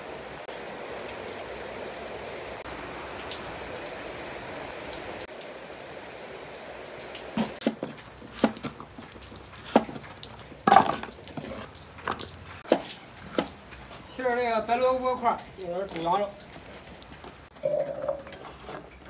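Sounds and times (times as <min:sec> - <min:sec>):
rain hiss: 0:00.0 - 0:19.0
cleaver chopping on wooden board: 0:07.6 - 0:08.8, 0:09.6 - 0:10.0.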